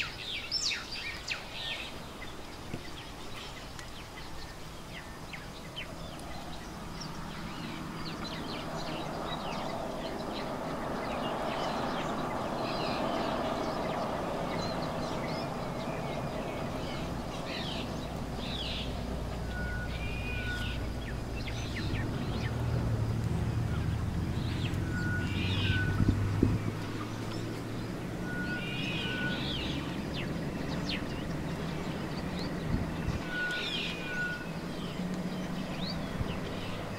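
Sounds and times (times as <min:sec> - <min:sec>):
birds chirping: 0:00.0 - 0:36.9
high whistle: 0:28.2 - 0:29.5, 0:33.1 - 0:34.5.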